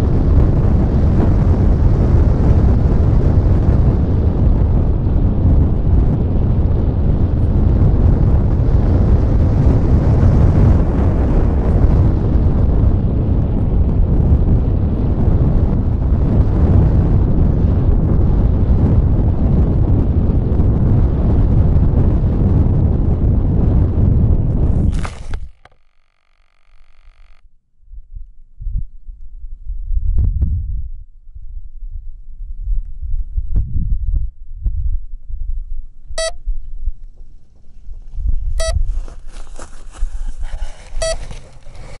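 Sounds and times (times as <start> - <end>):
wind buffeting microphone: 0.0 - 25.6, 27.9 - 42.0
glider airframe handled: 24.8 - 25.8, 39.7 - 42.0
grass rustling: 24.8 - 27.4, 37.6 - 42.0
short electronic beeps: 36.2 - 36.4, 38.6 - 38.8, 41.0 - 41.2.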